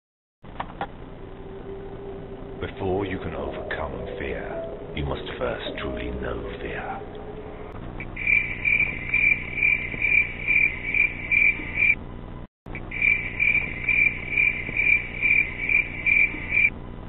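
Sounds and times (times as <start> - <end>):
high even chirping: 3.6 - 12.0, 12.8 - 16.7.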